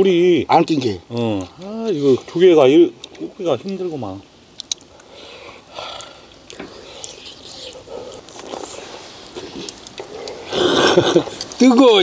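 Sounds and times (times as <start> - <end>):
soft chewing: 4.6 - 11.6
loud breathy huff: 10.1 - 11.3.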